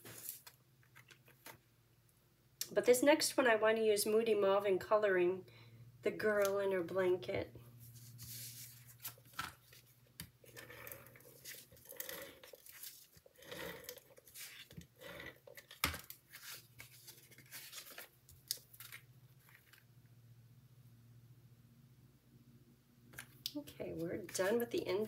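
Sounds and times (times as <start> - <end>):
tape runner strokes: 7.8 - 9.8
paper handling: 7.9 - 14.9, 15.5 - 19.9.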